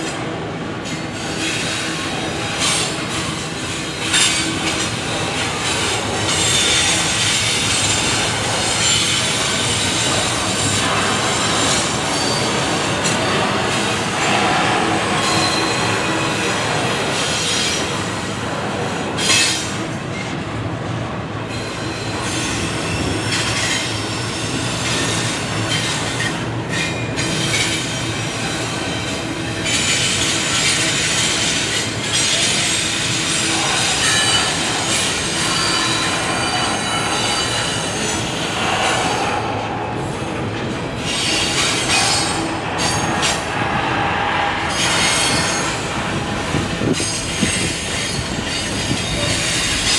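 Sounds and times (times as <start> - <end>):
freight train wheels on rails: 0.0 - 49.9.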